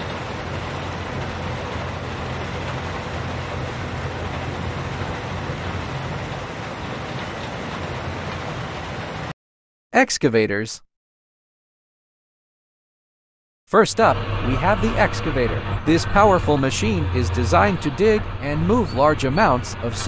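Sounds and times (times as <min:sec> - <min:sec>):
heavy machinery engine running: 0:00.0 - 0:09.3, 0:13.9 - 0:20.0.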